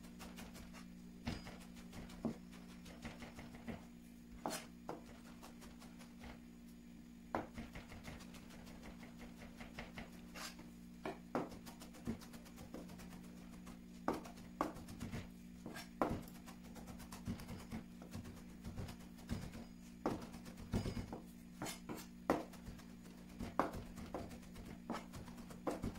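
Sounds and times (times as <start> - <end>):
steady low hum: 0.0 - 25.9
knife chopping on cutting board: 4.4 - 6.3, 7.3 - 25.9.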